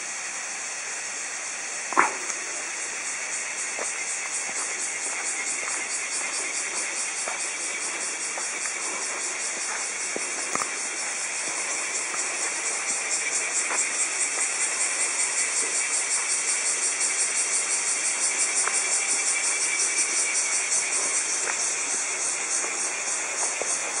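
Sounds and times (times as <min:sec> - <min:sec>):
cicadas buzzing: 0:00.0 - 0:24.0.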